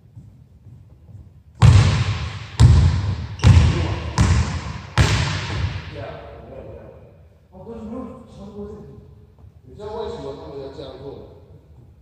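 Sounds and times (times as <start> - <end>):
basketball bouncing on wooden floor: 0.1 - 5.8.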